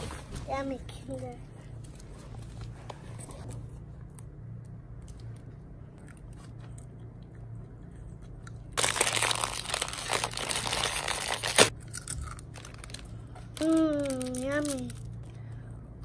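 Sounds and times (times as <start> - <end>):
plastic wrapper crinkling: 8.8 - 15.2.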